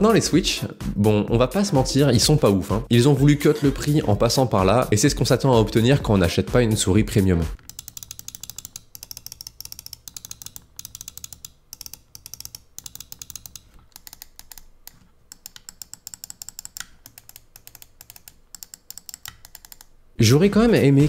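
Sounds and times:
mouse buttons clicking rapidly: 7.6s - 20.1s.

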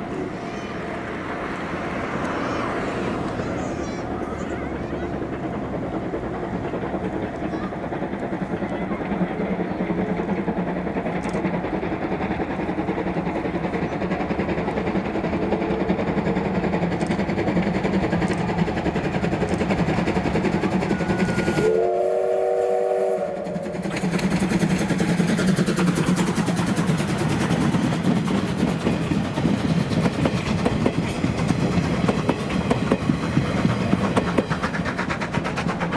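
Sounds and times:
steam locomotive working: 0.0s - 35.9s
train wheels clicking: 0.0s - 35.9s
steam whistle: 21.0s - 23.8s.

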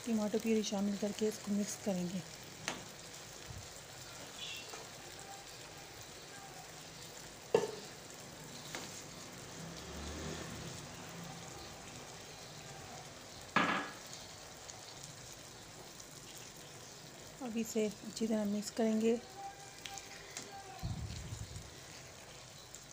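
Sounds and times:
potatoes sizzling in oil: 0.0s - 22.9s
sharp knocks: 13.6s - 14.0s
spatula stirring in pan: 14.0s - 17.4s, 19.2s - 22.9s.

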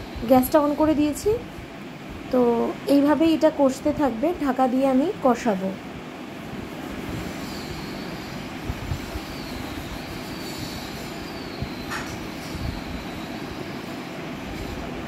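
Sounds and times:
gas burner rushing: 5.2s - 15.0s
faint wavering whistle: 7.3s - 14.1s.

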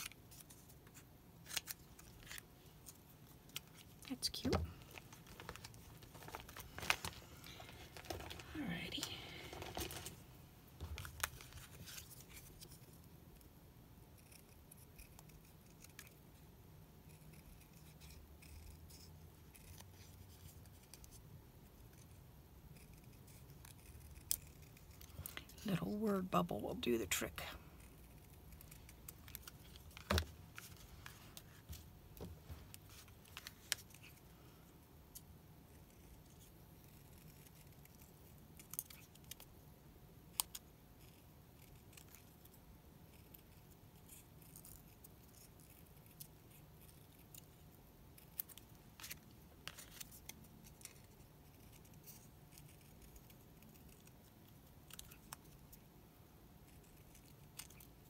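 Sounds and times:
scissors snipping paper: 21.9s - 25.6s, 56.6s - 58.0s.

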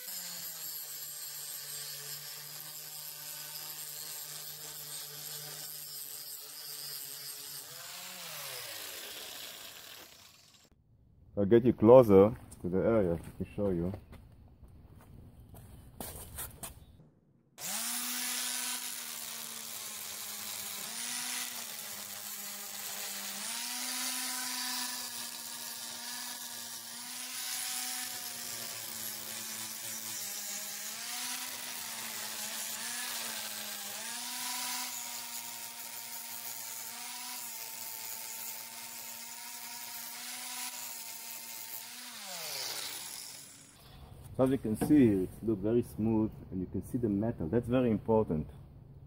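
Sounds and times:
angle grinder grinding metal: 0.0s - 10.7s, 17.6s - 45.2s.

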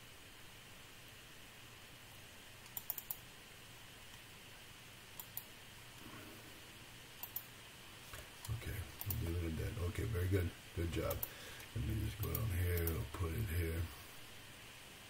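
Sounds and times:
faint low hum: 0.0s - 15.0s
computer mouse clicks: 2.6s - 3.2s, 5.2s - 5.5s, 7.2s - 7.5s, 8.2s - 9.3s, 11.1s - 13.0s.

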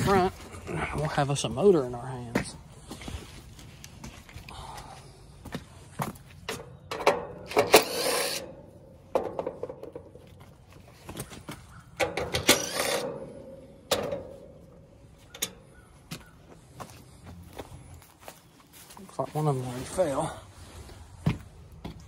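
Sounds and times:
metal parts clicking and knocking: 6.5s - 8.5s, 12.0s - 14.6s
cordless drill running: 12.4s - 13.1s.

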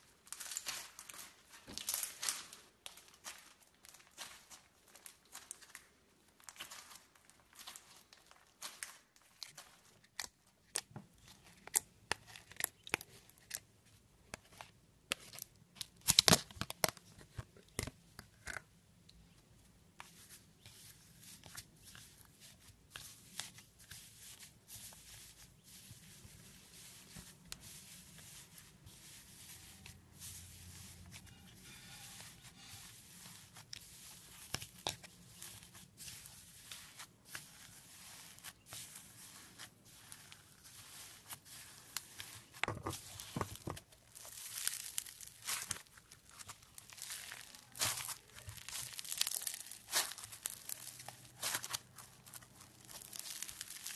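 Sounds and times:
plastic bag crinkling: 0.2s - 10.0s, 37.3s - 53.9s
slime crackling and popping: 15.2s - 17.0s, 39.1s - 53.9s
hand pressing into foam beads: 38.6s - 53.9s
foam beads pouring into a tub: 44.2s - 45.4s, 52.9s - 53.9s.

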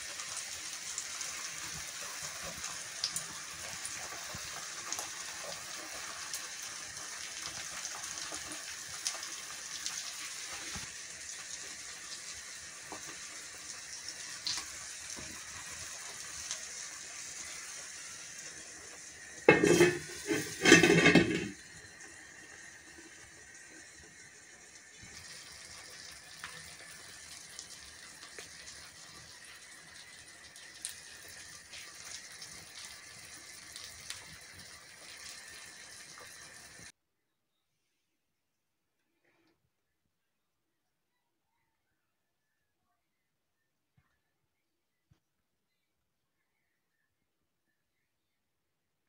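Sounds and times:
eggs sizzling in a pan: 0.0s - 37.0s
pan lid clattering: 19.5s - 21.6s.

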